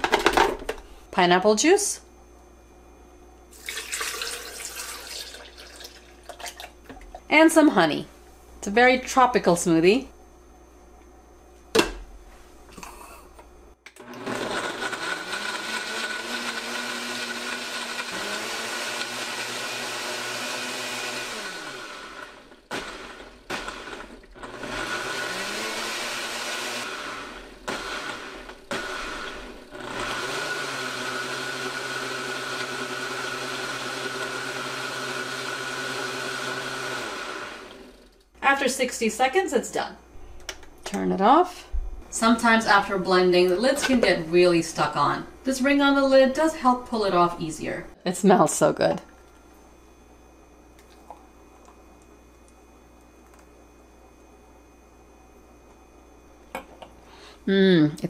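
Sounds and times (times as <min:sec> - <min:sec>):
blender motor running: 0:13.9 - 0:38.3.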